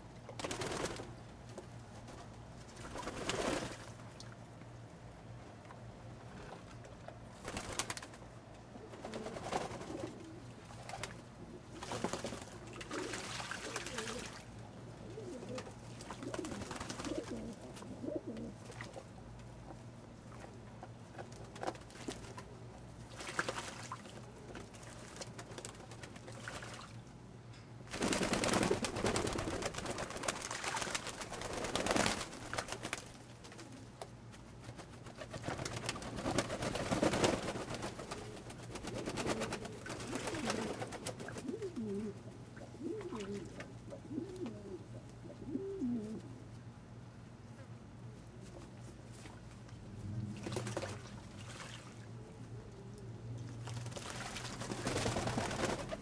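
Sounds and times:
wings beating and splashing water: 0:02.7 - 0:04.0, 0:07.4 - 0:08.2, 0:09.0 - 0:14.5, 0:15.4 - 0:17.4, 0:21.2 - 0:27.0, 0:27.9 - 0:33.7, 0:34.6 - 0:41.6, 0:50.2 - 0:52.2, 0:53.5 - 0:56.0
pigeons cooing: 0:08.7 - 0:12.1, 0:12.8 - 0:14.4, 0:15.0 - 0:18.6, 0:38.0 - 0:46.4.

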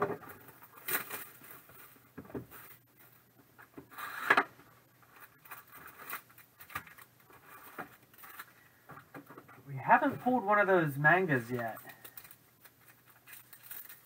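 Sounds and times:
cardboard rustling and scraping: 0:00.0 - 0:08.6.

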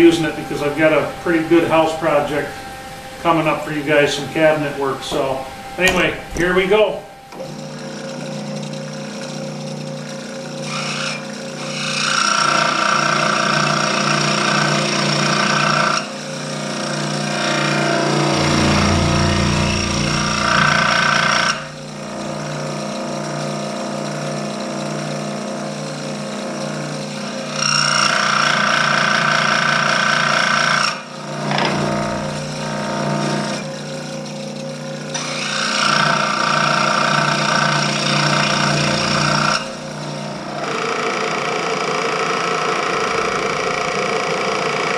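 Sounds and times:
scroll saw running: 0:05.2 - 0:44.9
saw blade cutting wood: 0:07.3 - 0:23.0, 0:26.8 - 0:43.3.

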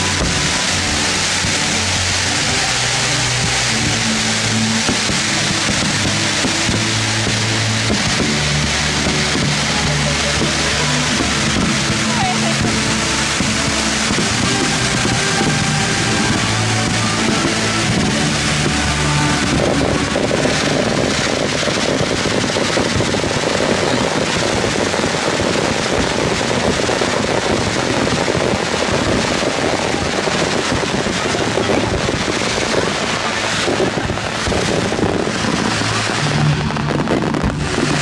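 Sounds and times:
fireworks bursting and crackling: 0:00.0 - 0:38.0
music: 0:00.0 - 0:38.0.

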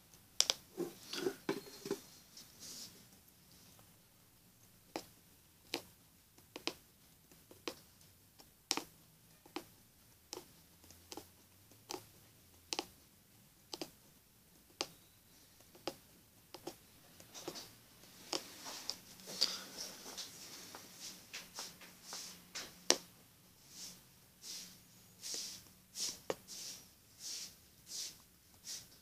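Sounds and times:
punch needle tapping through fabric: 0:04.9 - 0:12.9, 0:13.7 - 0:14.0.

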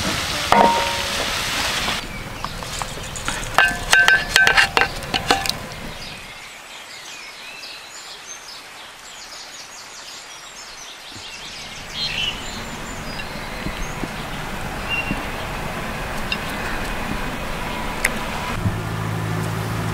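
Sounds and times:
outdoor background hiss: 0:00.0 - 0:19.9
birds chirping: 0:00.6 - 0:18.6.

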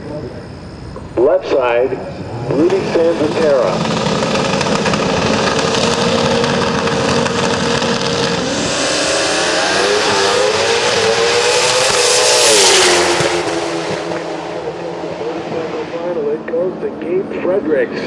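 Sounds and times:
drag-racing motorcycles revving: 0:00.8 - 0:18.0
motorcycles accelerating through gears: 0:02.0 - 0:17.6.

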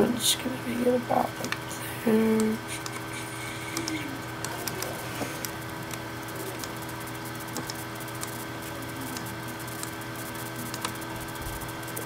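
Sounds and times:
electrical hum and hiss: 0:00.0 - 0:12.0
computer mouse clicks: 0:03.7 - 0:06.8, 0:07.5 - 0:08.4, 0:09.1 - 0:10.0, 0:10.6 - 0:11.0.

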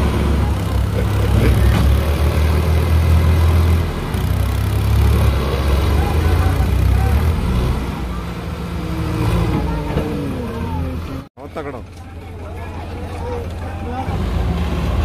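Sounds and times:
crowd talking: 0:00.0 - 0:02.6, 0:05.6 - 0:15.0
tractor engines rumbling: 0:00.0 - 0:15.0.

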